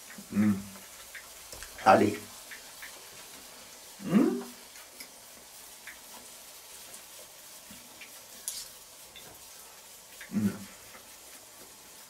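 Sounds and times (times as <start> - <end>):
low steady hiss: 0.0 - 12.0
man's rising hm: 0.3 - 0.7, 4.0 - 4.5, 10.3 - 10.7
faint scattered clicks: 2.4 - 3.5, 5.8 - 6.1.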